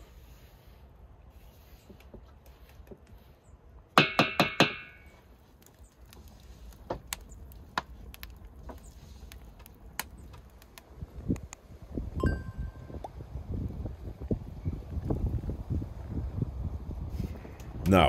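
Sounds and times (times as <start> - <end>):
wood fire crackling: 0.0 - 18.0
small pops of fire: 4.7 - 12.2, 17.1 - 18.0.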